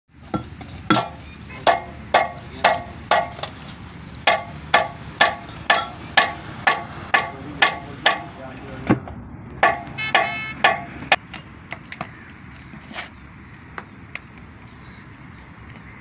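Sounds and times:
hammer striking steel: 0.3 - 3.6, 4.2 - 8.4, 9.6 - 11.2.

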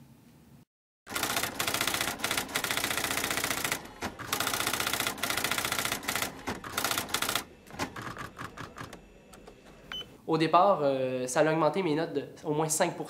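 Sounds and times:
typewriter keystrokes clattering: 1.1 - 9.8.

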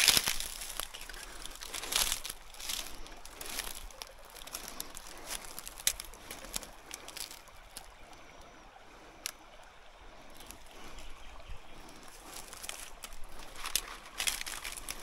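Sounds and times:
light clicks and crackles: 0.0 - 8.2, 9.2 - 9.5, 12.0 - 15.0
creek trickling: 0.0 - 15.0.

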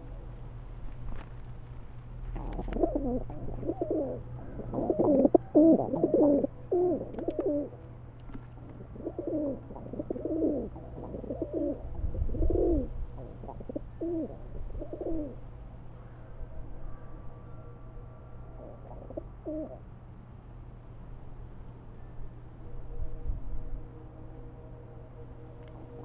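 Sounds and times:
pigeons cooing: 2.2 - 15.4, 18.4 - 19.9.

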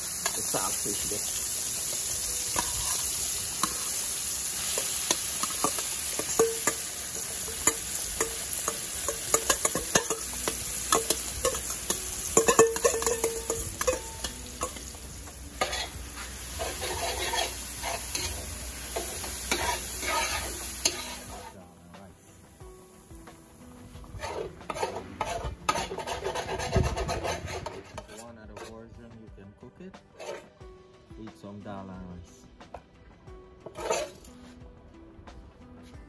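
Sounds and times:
fish sizzling in hot oil: 0.0 - 21.6
stirring in pan: 0.0 - 21.6, 23.9 - 28.8, 30.2 - 30.5, 33.6 - 34.2
metal spoon scraping bowl: 2.5 - 14.9, 15.6 - 16.0, 16.6 - 21.5, 24.1 - 28.8, 30.1 - 30.6, 33.6 - 34.3.

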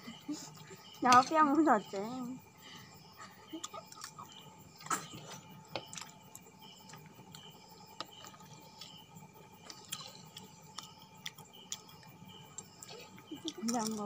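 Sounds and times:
mouth chewing noodles: 9.6 - 14.0.

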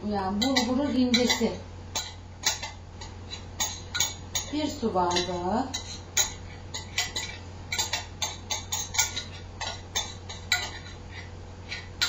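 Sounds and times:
clinks against glass bowl: 5.1 - 10.8.

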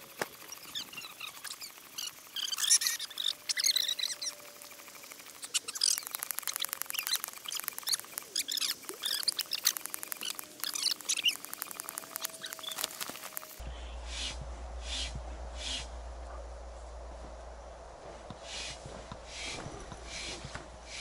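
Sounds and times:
fast dense clicking: 0.0 - 13.6
small birds chirping: 0.0 - 16.0.

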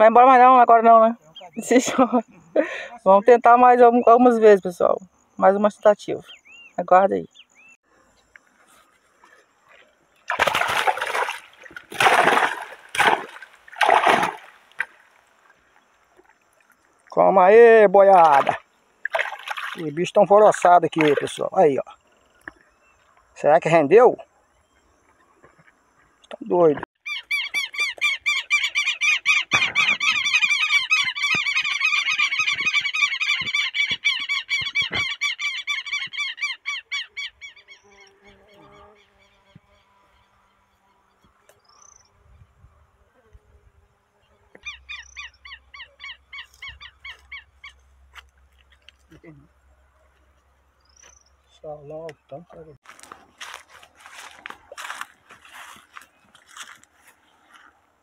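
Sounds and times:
mesh bag splashing in water: 10.3 - 15.2, 18.2 - 19.8
flock of birds calling: 27.0 - 38.0.

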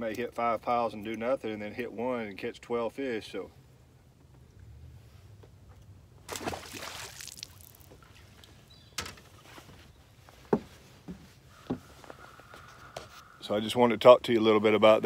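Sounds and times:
water splashing: 6.2 - 8.7
footsteps on boat deck: 8.4 - 13.2.

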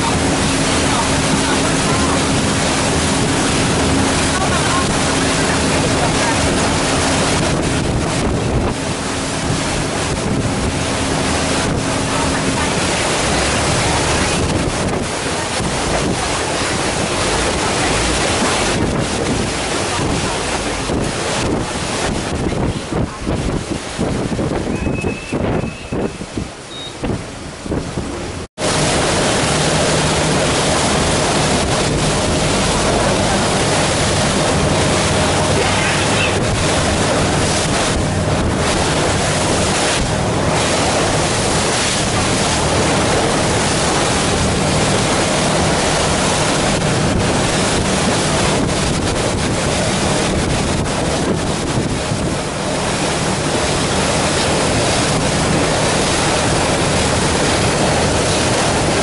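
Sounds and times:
boat engine droning: 0.0 - 59.0
water rushing: 0.0 - 59.0
wind buffeting microphone: 0.0 - 59.0.

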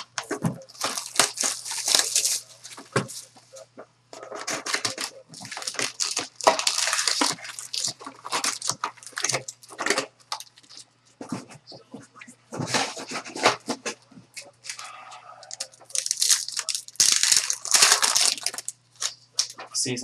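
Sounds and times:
plastic wrap tearing and crinkling: 0.0 - 3.3, 4.2 - 10.9, 14.7 - 19.8.

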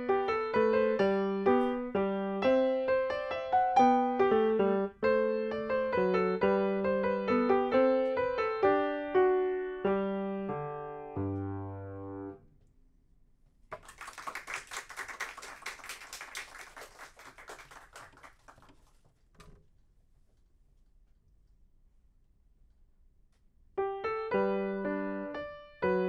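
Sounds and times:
grand piano chords: 0.0 - 12.4, 23.8 - 26.0.

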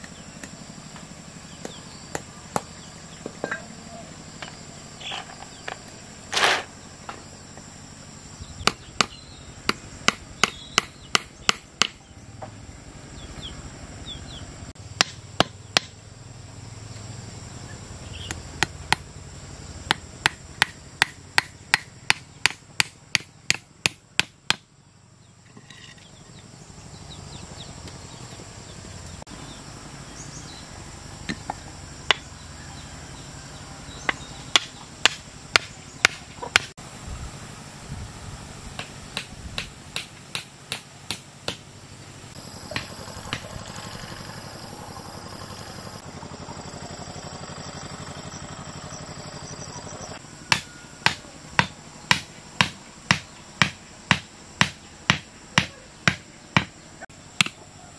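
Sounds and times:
hammer striking bamboo: 8.6 - 12.0, 15.0 - 16.0, 18.2 - 19.1, 19.9 - 24.7, 31.2 - 32.3, 34.0 - 36.8, 38.8 - 41.8, 42.7 - 43.6, 50.4 - 56.8, 57.4 - 57.6.

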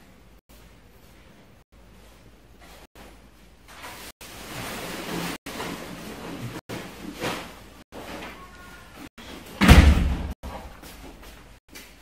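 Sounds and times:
loud thump: 9.6 - 10.4.

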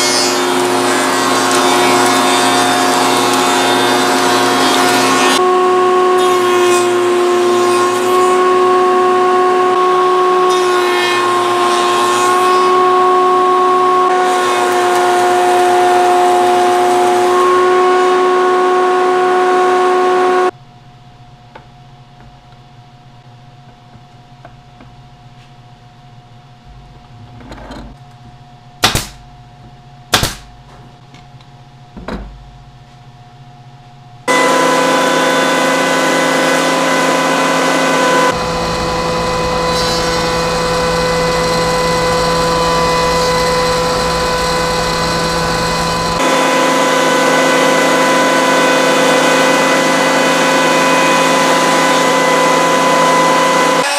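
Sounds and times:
spindle shaper machine whine: 0.0 - 20.5, 34.3 - 53.9.

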